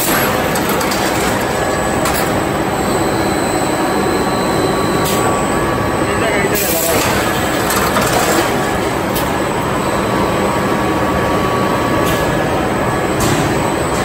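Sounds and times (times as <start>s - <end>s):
loud machinery din: 0.0s - 9.6s.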